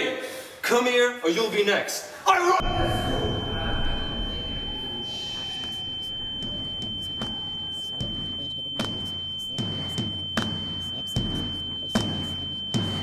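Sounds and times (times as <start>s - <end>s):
high-pitched pure tone: 2.6s - 13.0s.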